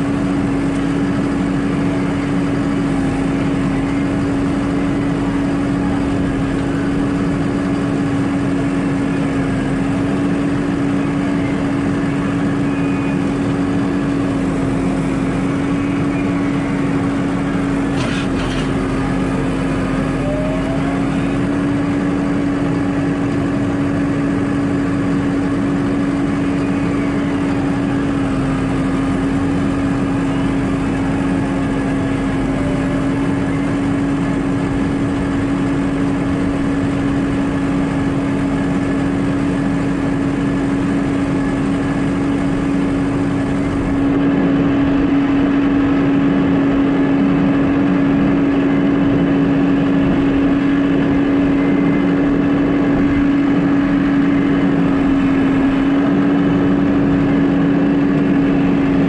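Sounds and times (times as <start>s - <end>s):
tractor diesel engine droning: 0.0s - 59.0s.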